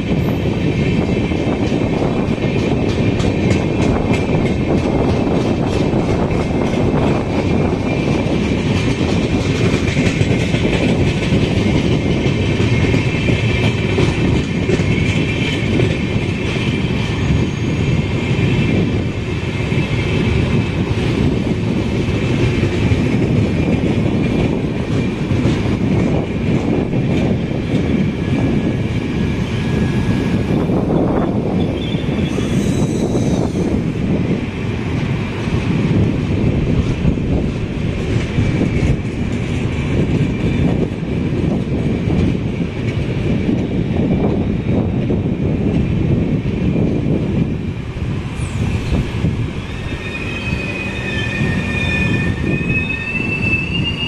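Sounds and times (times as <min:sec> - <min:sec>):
train wheels rumbling on rail: 0:00.0 - 0:54.0
wheels clacking over rail joints: 0:00.2 - 0:29.8.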